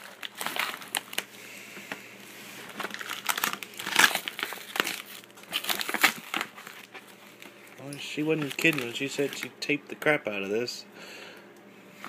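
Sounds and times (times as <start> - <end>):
packing tape and cardboard tearing: 0.0 - 1.3, 2.6 - 7.1, 8.3 - 9.5.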